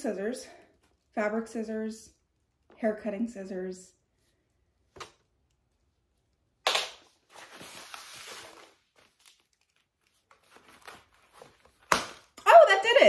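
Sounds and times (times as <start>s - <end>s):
plastic wrapping rustling: 7.0s - 12.4s.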